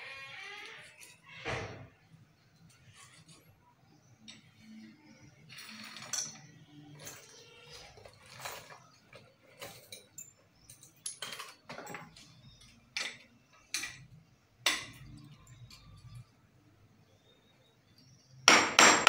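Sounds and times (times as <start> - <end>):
metallic clinks and knocks: 4.2 - 16.4.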